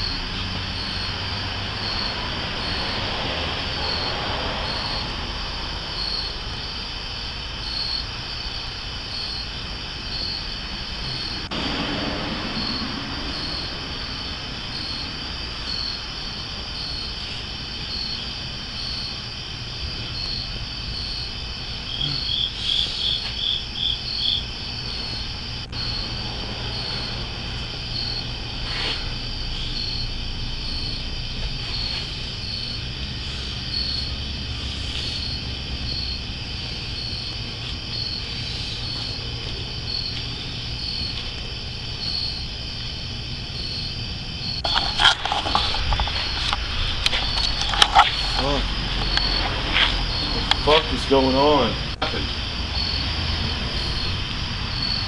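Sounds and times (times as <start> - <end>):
insects chirping: 0.0 - 55.0
low steady rumble: 23.6 - 55.0.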